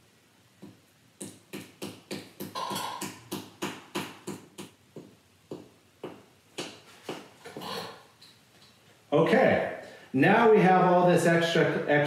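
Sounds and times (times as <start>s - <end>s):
paddle tapping clay: 0.6s - 7.3s.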